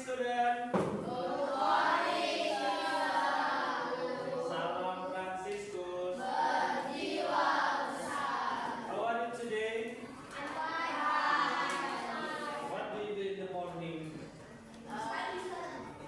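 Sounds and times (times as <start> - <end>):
children singing in unison: 1.0 - 5.2, 6.1 - 8.9, 10.5 - 12.7.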